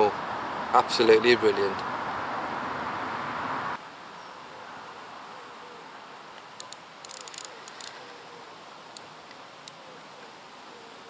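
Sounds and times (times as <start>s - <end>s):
steady hiss: 3.8s - 11.0s
fishing reel clicking: 6.6s - 7.9s.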